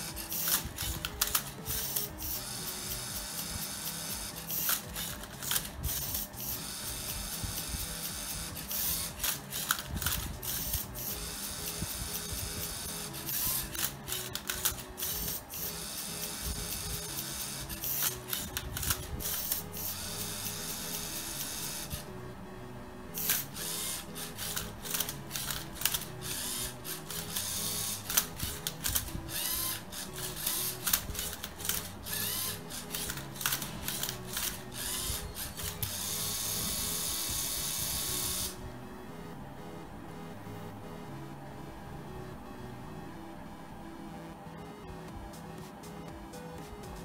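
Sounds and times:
robot motors running: 0.0s - 22.1s, 23.2s - 38.6s
background music: 0.0s - 47.0s.

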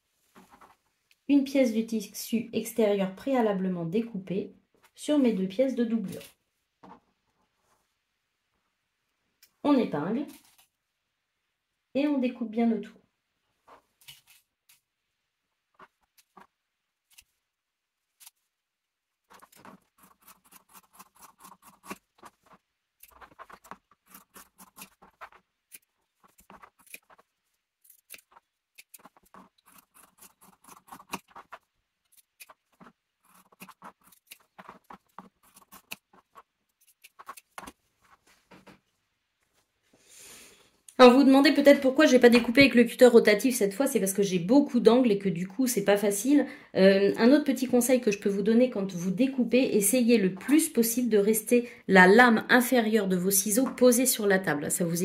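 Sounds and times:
scissors snipping fabric: 17.1s - 17.3s, 19.3s - 37.8s.

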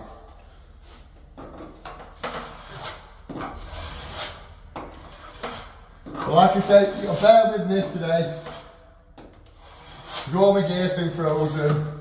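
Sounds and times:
trowel scraping filler: 0.0s - 8.8s, 9.4s - 12.0s.

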